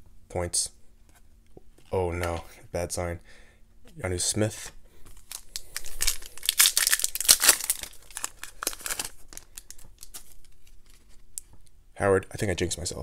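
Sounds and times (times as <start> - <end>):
cards rustling and clicking: 5.0 - 11.6
card pack wrapper tearing: 5.2 - 11.0.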